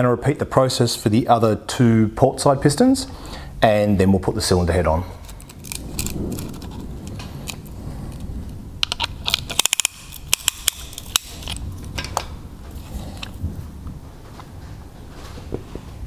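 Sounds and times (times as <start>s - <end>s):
low steady rumble: 2.0s - 16.0s.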